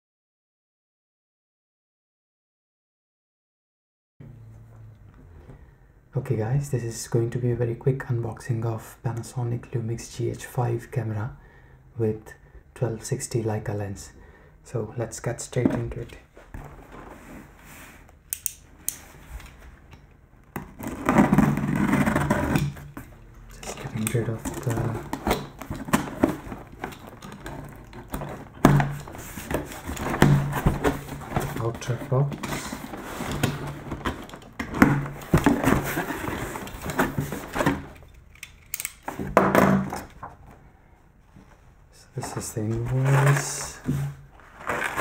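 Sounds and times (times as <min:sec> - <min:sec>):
sharp clicks: 0:18.3 - 0:19.0
cardboard box rustling and scraping: 0:20.7 - 0:23.0, 0:23.7 - 0:37.9, 0:42.8 - 0:45.0.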